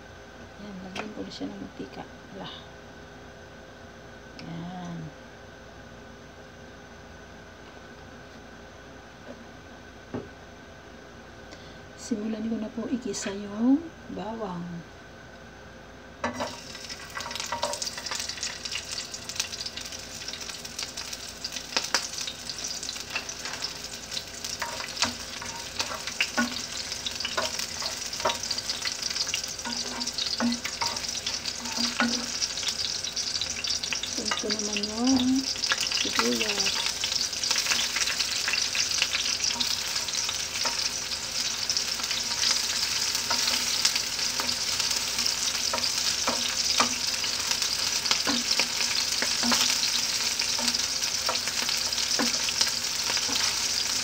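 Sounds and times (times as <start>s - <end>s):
garlic sizzling in oil: 16.2s - 54.0s
spatula scraping pan: 24.4s - 32.8s.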